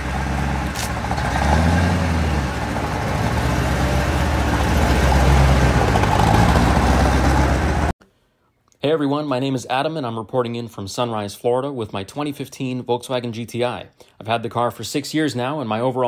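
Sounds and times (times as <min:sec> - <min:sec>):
truck engine pulling away: 0:00.0 - 0:07.9.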